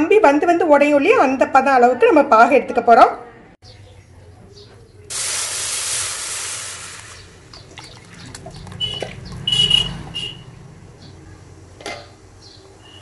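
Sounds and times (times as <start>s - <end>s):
liquid pouring through strainer: 5.1s - 9.2s.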